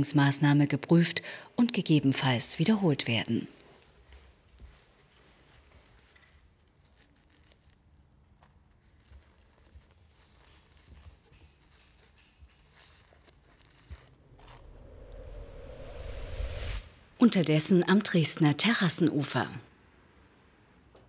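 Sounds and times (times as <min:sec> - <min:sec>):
knife scraping and tearing: 0:05.6 - 0:15.0.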